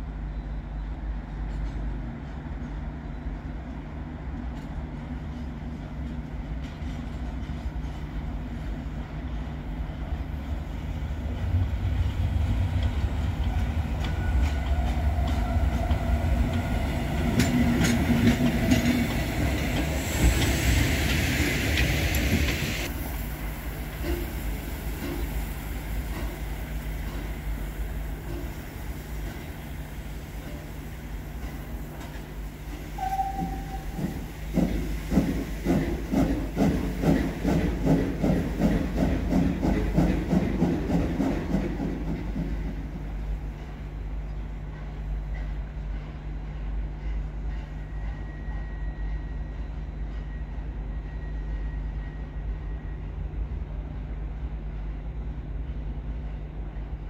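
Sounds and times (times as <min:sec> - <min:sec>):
steam locomotive rumble: 0:00.0 - 0:57.0
wheels clacking over rail joints: 0:12.6 - 0:22.9
steam hiss: 0:16.2 - 0:42.1.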